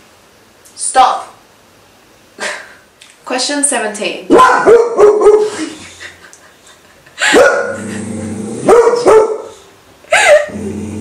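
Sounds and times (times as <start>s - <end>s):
dog barking: 4.3s - 5.6s, 7.2s - 7.8s, 8.6s - 9.6s.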